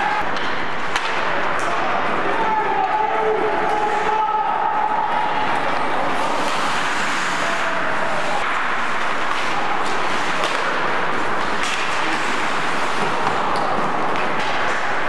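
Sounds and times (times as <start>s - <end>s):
hockey sticks and puck clacking: 0.0s - 15.0s
rink and crowd noise: 0.0s - 15.0s.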